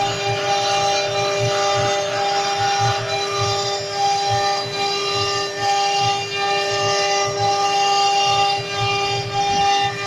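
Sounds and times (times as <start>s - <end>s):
low uneven pulses: 0.0s - 10.0s
router spindle high whine: 0.0s - 10.0s.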